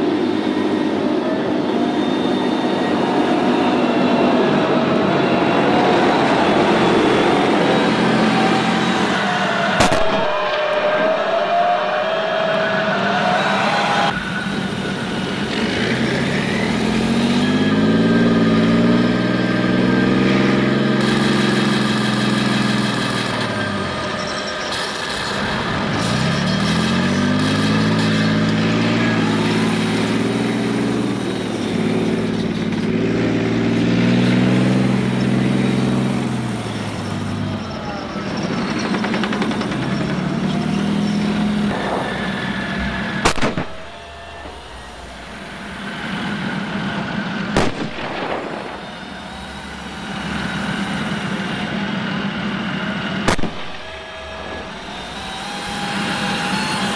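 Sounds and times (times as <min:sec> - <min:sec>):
sharp crack: 0:09.7 - 0:10.9, 0:41.6 - 0:44.6, 0:47.3 - 0:49.3, 0:53.2 - 0:54.8
simulated tank engine from speaker: 0:11.1 - 0:43.2, 0:48.5 - 0:53.2.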